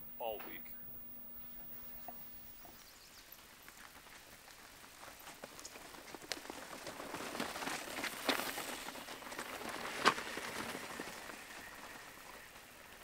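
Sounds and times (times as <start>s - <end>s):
bike tyres crunching on trail: 1.5s - 13.0s
bikes clattering: 4.0s - 13.0s.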